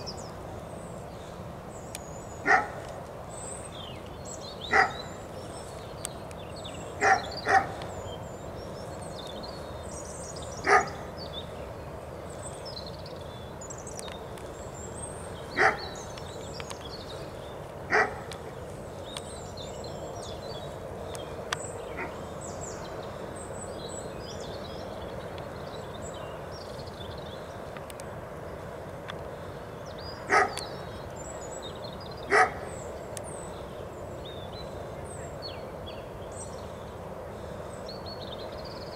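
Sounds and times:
background hum: 0.0s - 38.9s
dog barking: 2.5s - 2.8s, 4.7s - 5.0s, 7.0s - 7.8s, 10.7s - 11.0s, 15.6s - 15.9s, 17.9s - 18.2s, 30.3s - 30.6s, 32.3s - 32.6s.

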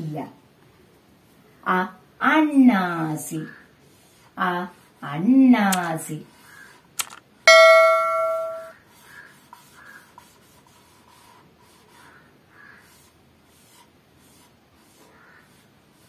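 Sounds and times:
bell-like chime: 7.5s - 8.7s
marker squeaking on whiteboard: 8.9s - 16.0s.

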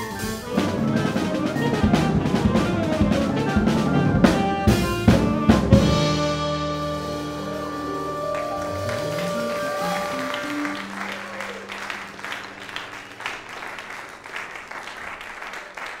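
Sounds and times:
jazz band closing chord: 0.0s - 14.4s
audience applauding: 7.2s - 16.0s.

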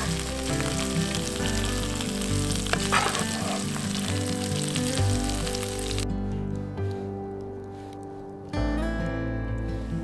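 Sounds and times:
meat sizzling in a frying pan: 0.0s - 6.0s
soft background music: 0.0s - 10.0s.

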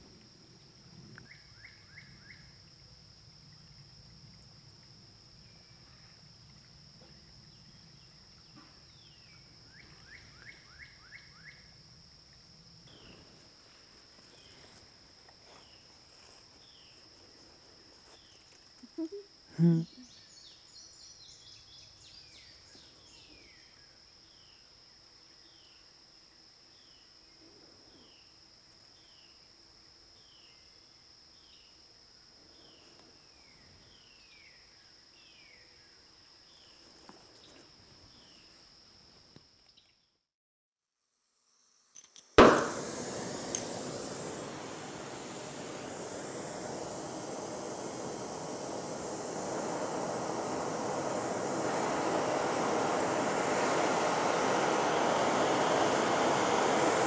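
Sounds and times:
high-pitched insect drone: 18.0s - 20.2s, 41.5s - 57.0s
loud brief sound: 42.4s - 43.9s.

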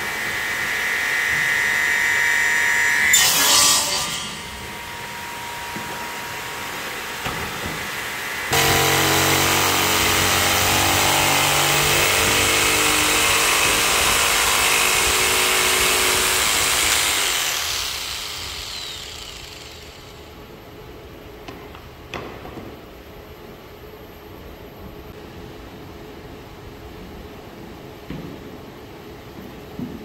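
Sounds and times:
jigsaw cutting wood: 8.5s - 20.3s.

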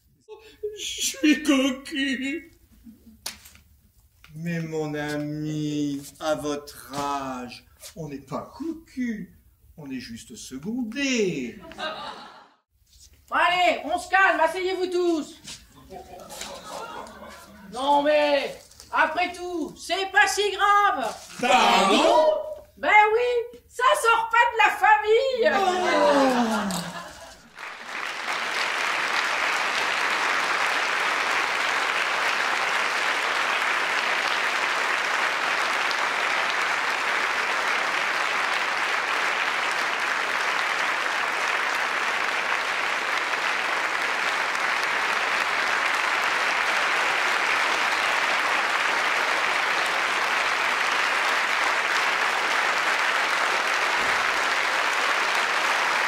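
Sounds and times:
audience applauding: 15.8s - 18.8s, 25.5s - 56.0s.

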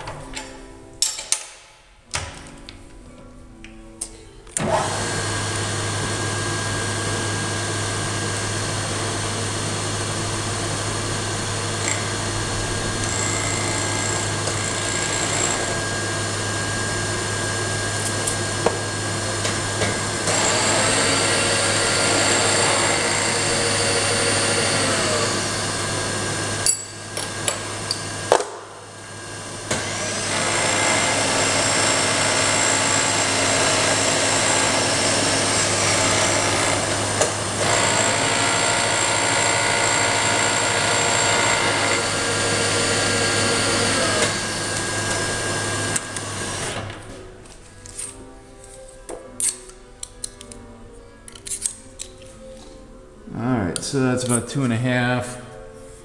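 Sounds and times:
milling cutter cutting metal: 4.6s - 28.6s, 29.4s - 47.0s
milling machine motor hum: 4.6s - 47.0s.

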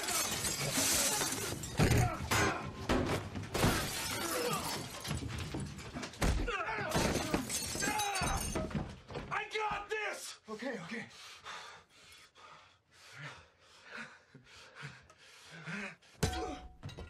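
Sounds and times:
glass shattering: 0.0s - 2.2s, 3.6s - 6.3s, 6.9s - 8.8s
men grunting and crying out: 0.0s - 2.9s.

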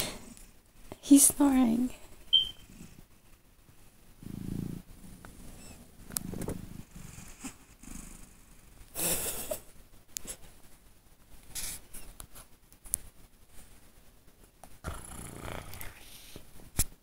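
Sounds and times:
cat snoring: 4.2s - 9.1s, 14.8s - 16.4s.

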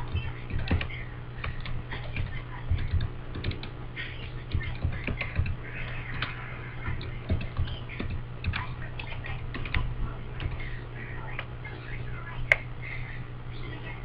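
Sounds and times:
steady low hum: 0.0s - 14.0s
keyboard typing clicks: 0.1s - 6.3s, 6.9s - 10.7s.

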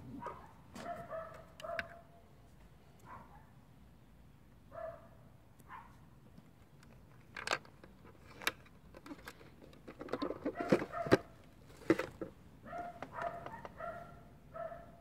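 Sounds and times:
plastic housing clicks and knocks: 6.8s - 13.8s.

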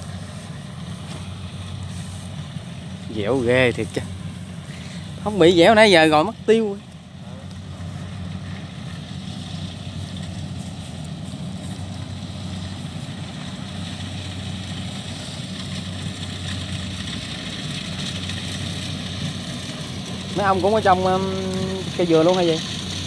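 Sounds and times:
combine harvester diesel engine: 0.0s - 23.0s.

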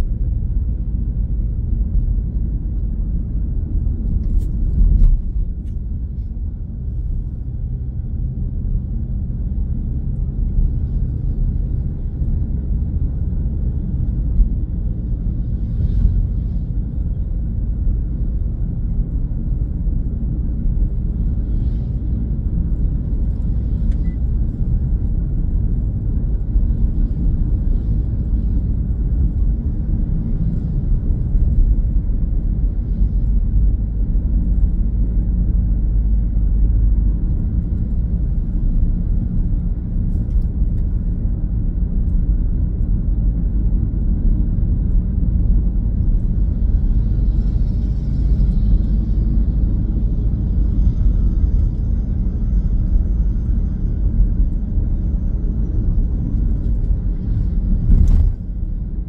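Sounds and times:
road and engine noise in car cabin: 0.0s - 59.0s.

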